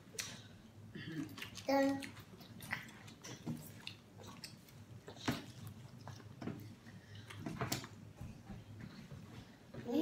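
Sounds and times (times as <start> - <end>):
person chewing: 0.0 - 7.5.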